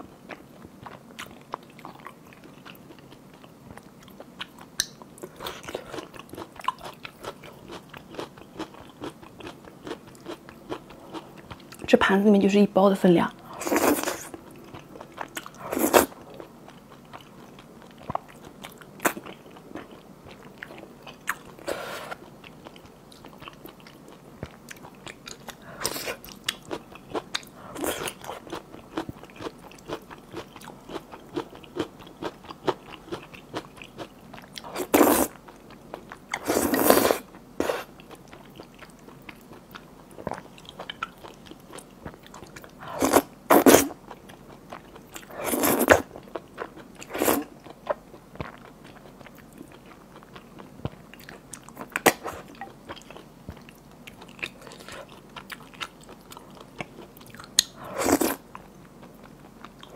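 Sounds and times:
slurping noodles: 34.8s - 35.3s, 45.4s - 46.0s, 47.1s - 47.5s.

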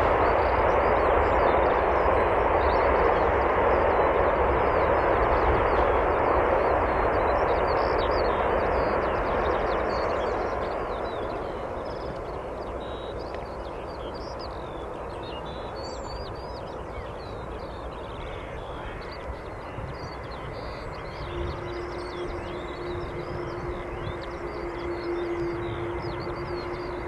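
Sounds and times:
birds chirping: 0.0s - 27.0s
jet engine rumbling: 0.0s - 27.0s
steady hum: 15.6s - 27.0s.

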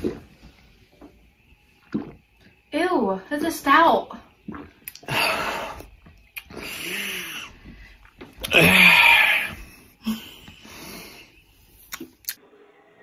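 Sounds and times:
man gagging and retching: 4.5s - 7.5s, 8.4s - 9.6s.

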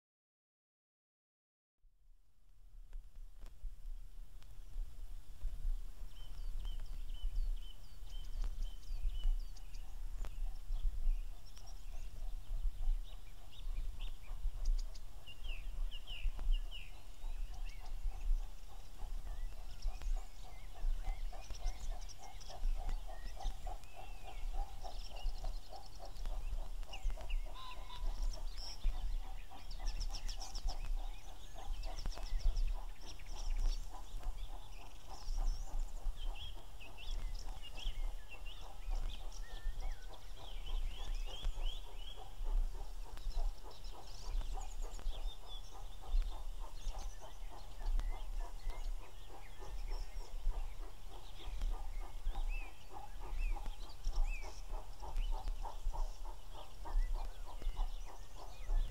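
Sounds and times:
birds chirping: 5.4s - 58.9s
distant steam locomotive rumble: 16.6s - 58.9s.

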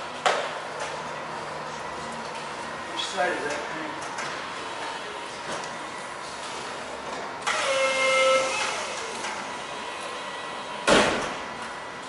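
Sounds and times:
forklift motor whine: 5.7s - 12.0s.

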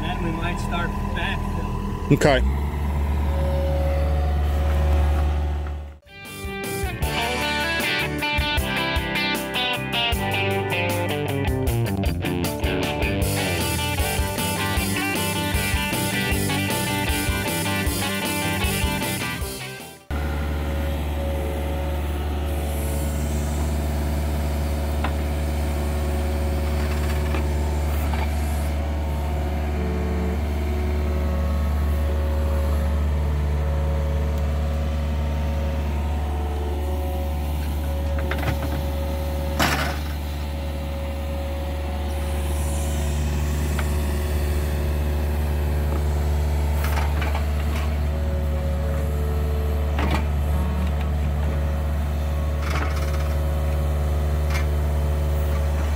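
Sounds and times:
excavator diesel engine running: 0.0s - 55.9s
hydraulics whining: 0.0s - 55.9s.

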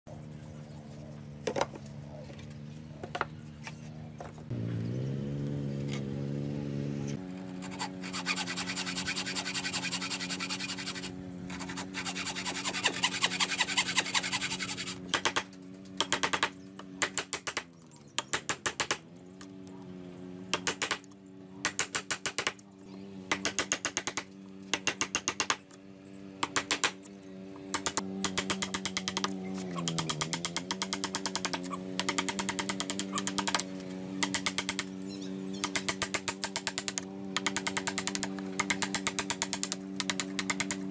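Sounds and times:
saw cutting wood: 7.2s - 17.4s, 27.7s - 40.9s.

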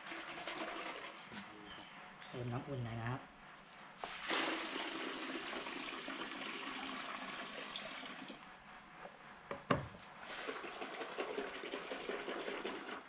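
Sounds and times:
water pouring into a basin: 0.0s - 1.2s, 4.1s - 8.4s, 10.3s - 13.0s
bucket knocking on table: 9.5s - 9.9s.

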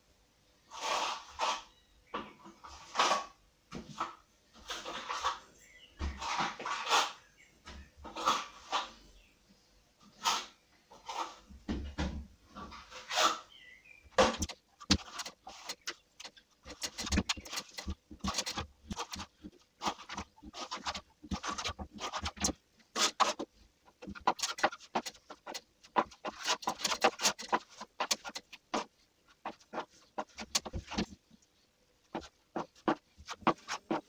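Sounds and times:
trowel scraping plaster on wall: 0.7s - 1.7s, 6.1s - 7.2s, 8.0s - 9.0s, 10.1s - 11.5s, 12.6s - 13.6s, 14.2s - 31.4s, 32.1s - 34.0s.

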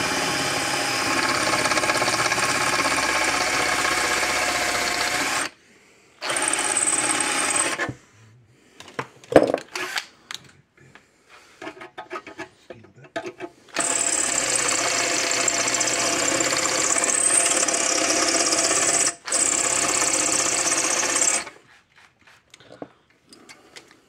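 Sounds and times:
power drill boring through sheet metal: 0.0s - 5.6s, 6.2s - 7.9s, 13.7s - 21.6s.

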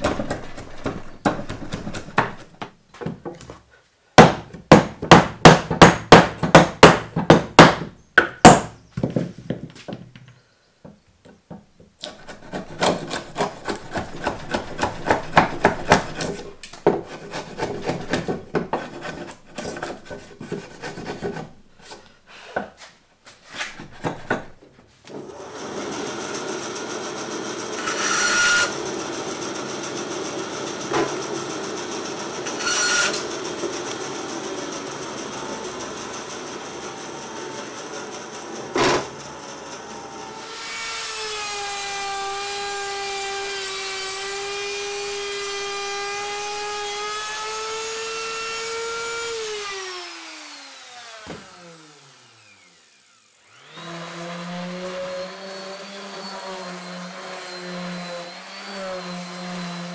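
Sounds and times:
mallet knocking chisel into wood: 4.2s - 8.8s
bandsaw running: 12.1s - 22.0s, 25.1s - 59.9s.

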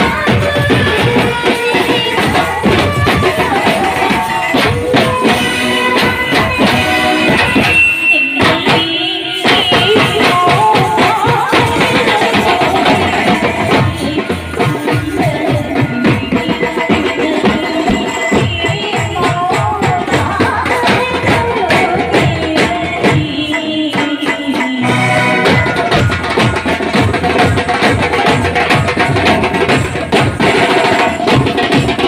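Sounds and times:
snare and bass drum beats: 0.0s - 32.0s
wavering horn melody: 24.8s - 26.0s.

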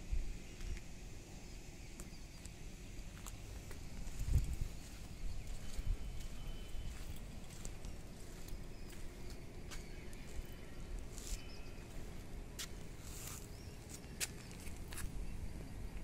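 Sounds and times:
wind rumble on microphone: 3.6s - 9.5s.

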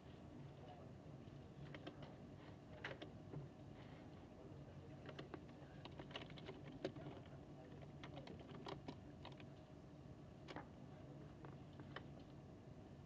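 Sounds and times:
air-conditioning hum: 0.0s - 13.0s
small clicks and taps: 5.0s - 9.5s.

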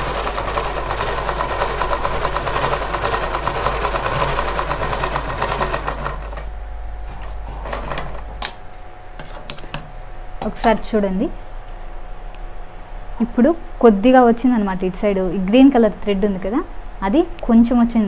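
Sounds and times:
sewing machine stitching: 0.0s - 6.5s, 7.1s - 8.2s.

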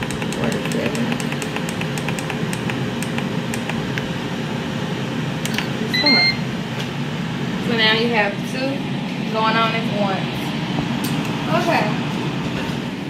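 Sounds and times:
air fryer fan hum: 0.0s - 13.0s
short beep: 5.9s - 6.4s.

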